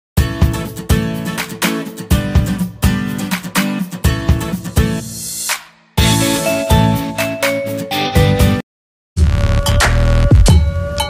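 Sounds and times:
strummed guitar chords: 0.2s - 5.2s, 6.0s - 8.6s.

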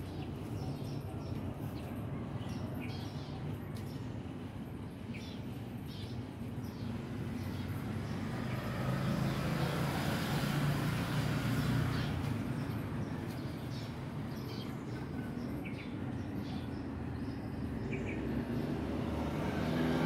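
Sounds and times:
birds chirping: 0.0s - 20.0s
motor vehicle passing: 7.0s - 13.9s, 17.6s - 20.0s.

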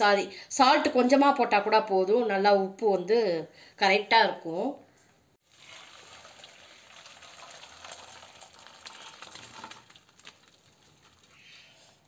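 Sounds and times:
water gushing through colander: 5.4s - 11.9s.

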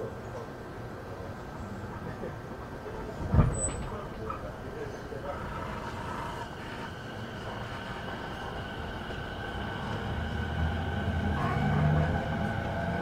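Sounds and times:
train car hum and rumble: 0.0s - 13.0s.

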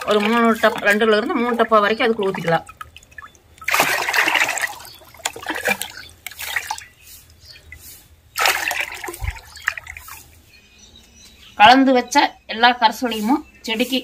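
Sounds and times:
liquid pouring into bucket: 0.0s - 6.9s, 8.4s - 10.2s
splashes and drips: 0.0s - 10.5s.

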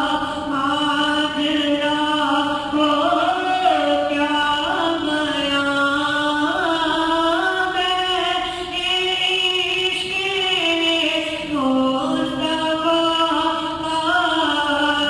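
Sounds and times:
person chanting solo: 1.9s - 5.1s.

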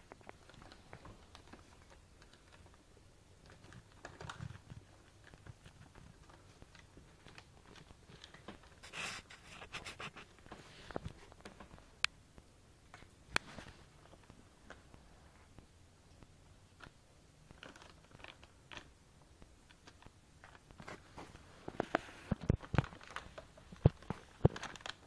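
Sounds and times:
plastic bag rustling: 17.5s - 18.9s, 19.8s - 25.0s.

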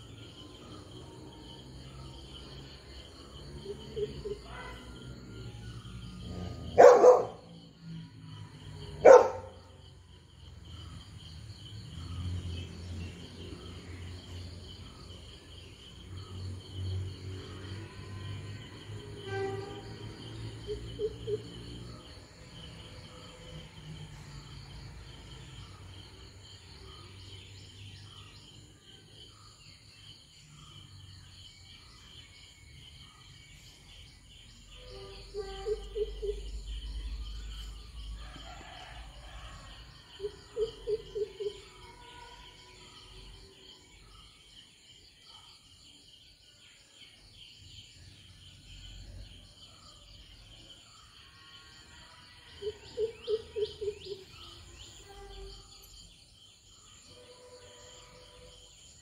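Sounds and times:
insects chirring: 0.0s - 59.0s
bird calling: 35.0s - 36.6s.

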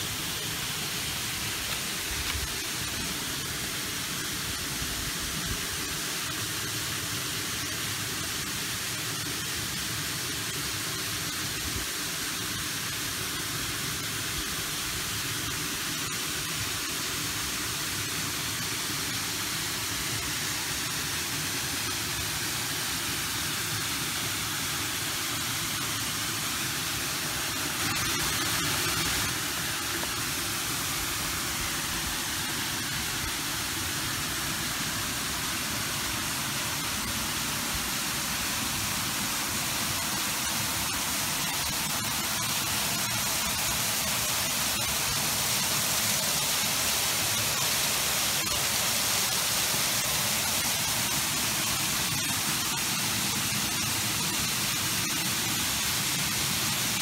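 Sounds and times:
steady rushing hiss: 0.0s - 57.0s.

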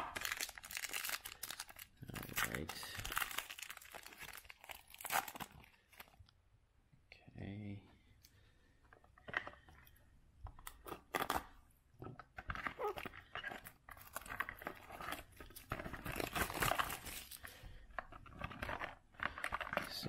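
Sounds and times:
plastic wrap crinkling and tearing: 0.0s - 6.2s, 10.6s - 11.6s, 12.4s - 20.0s.

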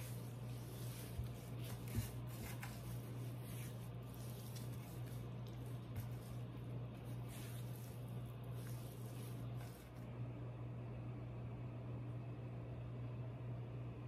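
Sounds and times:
squishing of wet poultry skin: 0.0s - 10.1s
steady low hum: 0.0s - 14.0s.

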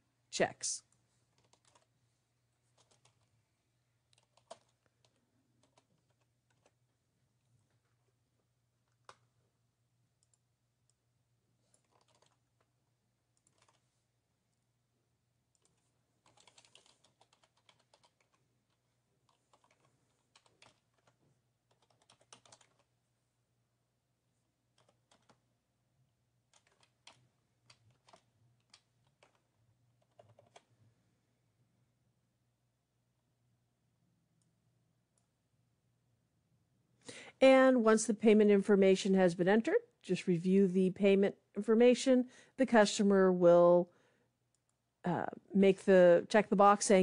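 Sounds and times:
typing on computer keyboard: 1.3s - 1.9s, 2.7s - 3.3s, 4.1s - 6.8s, 11.7s - 12.7s, 13.3s - 13.8s, 15.5s - 22.9s, 24.7s - 25.5s, 26.5s - 30.7s.

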